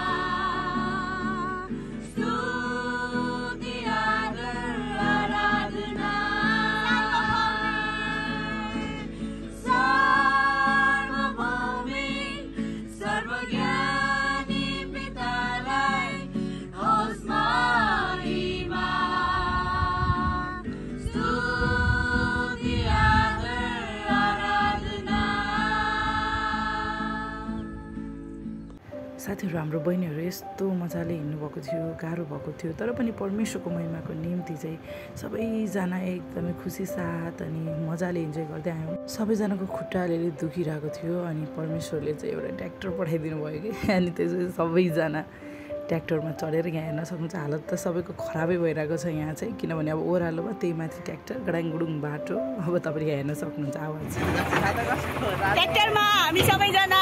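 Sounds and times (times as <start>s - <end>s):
young voices singing: 0.0s - 27.9s
strummed acoustic guitar: 54.0s - 57.0s.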